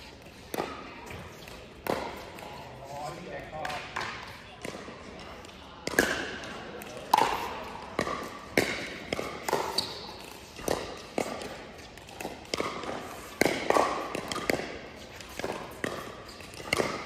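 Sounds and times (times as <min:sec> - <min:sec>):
paddles hitting plastic ball: 0:00.2 - 0:02.5, 0:03.4 - 0:17.0.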